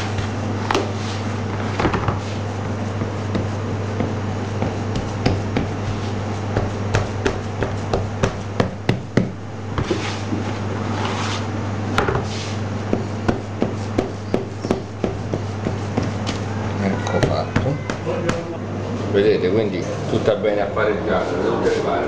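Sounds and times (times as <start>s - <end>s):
steady low hum: 0.0s - 22.0s
rubbing sounds: 9.8s - 11.5s.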